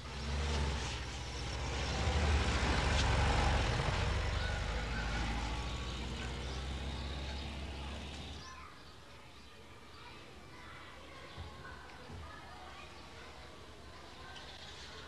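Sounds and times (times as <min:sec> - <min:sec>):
van engine passing by: 0:00.0 - 0:08.4.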